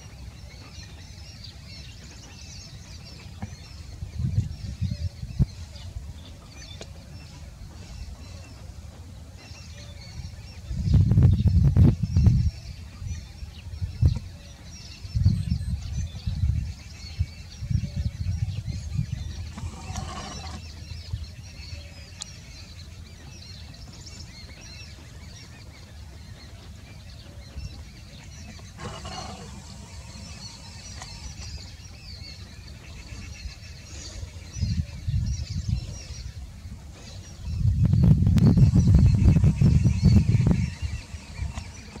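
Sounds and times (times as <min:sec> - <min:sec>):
birds chirping: 0:00.0 - 0:42.0
wind buffeting microphone: 0:00.0 - 0:42.0.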